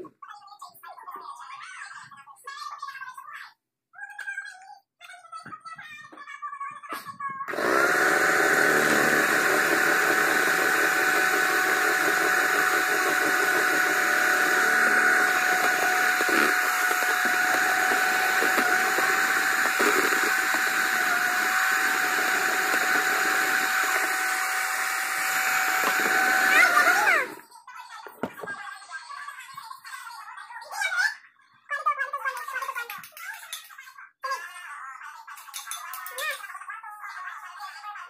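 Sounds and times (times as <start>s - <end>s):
electric hand mixer whining: 7.5s - 27.4s.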